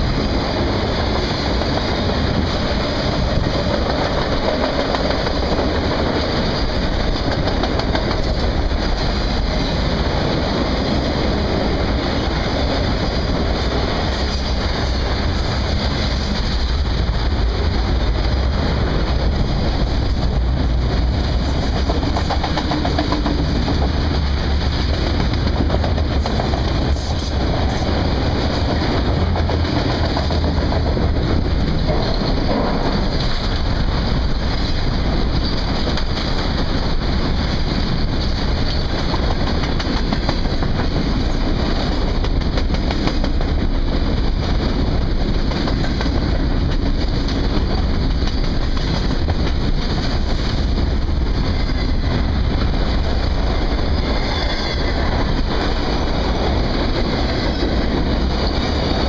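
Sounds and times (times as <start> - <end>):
clickety-clack of train wheels: 0.0 - 59.0
freight train rumbling past: 0.0 - 59.0.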